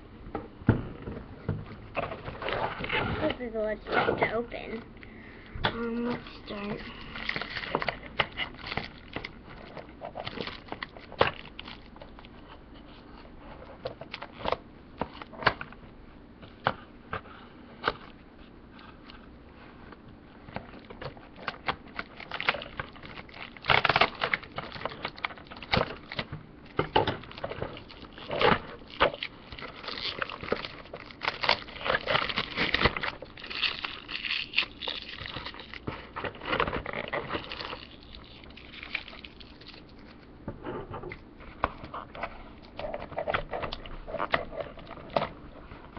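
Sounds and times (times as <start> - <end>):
plastic tape crinkling: 5.9 - 12.9, 20.5 - 40.3.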